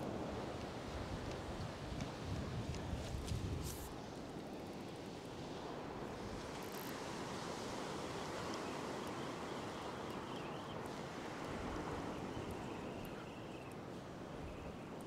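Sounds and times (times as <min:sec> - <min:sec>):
ocean surf breaking on beach: 0:04.4 - 0:14.8.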